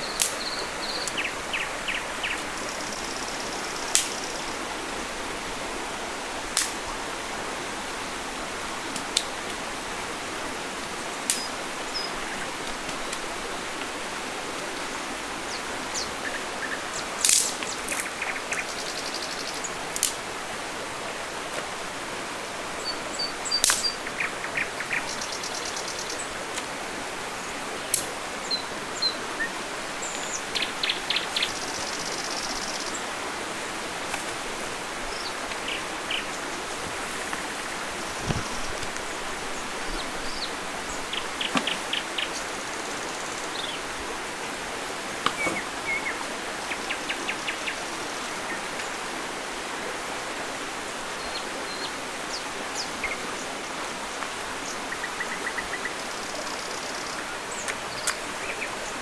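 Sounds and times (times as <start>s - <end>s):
stream water rushing: 0.0s - 59.0s
dry sticks snapping: 0.2s - 0.4s, 3.9s - 4.2s, 6.6s - 6.8s, 17.2s - 18.1s, 20.0s - 20.2s, 23.6s - 23.9s, 45.2s - 45.6s.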